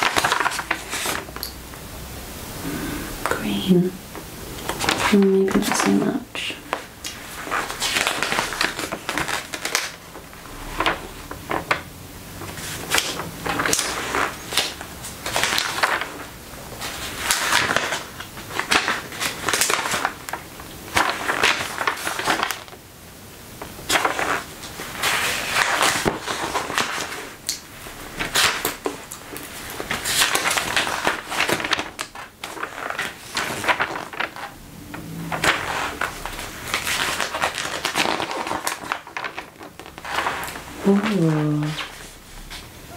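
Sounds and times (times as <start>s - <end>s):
magazine pages turning: 0.0s - 1.4s, 4.6s - 11.8s, 12.4s - 22.8s, 23.6s - 42.7s.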